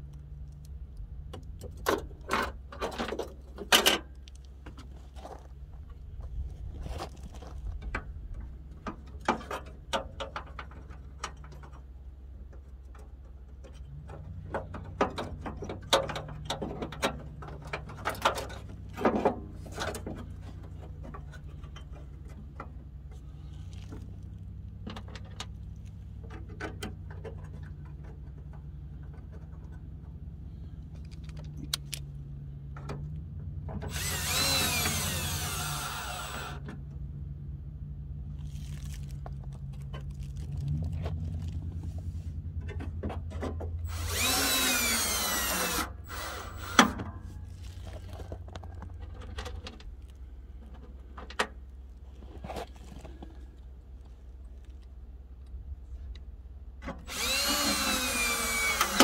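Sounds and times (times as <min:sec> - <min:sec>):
cordless drill spinning: 0:33.9 - 0:36.6, 0:43.8 - 0:47.0, 0:57.1 - 0:59.0.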